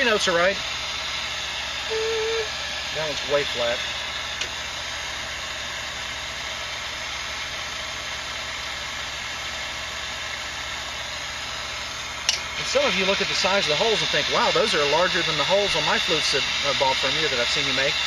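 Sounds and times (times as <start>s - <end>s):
even hiss: 0.0s - 5.2s, 11.1s - 18.0s.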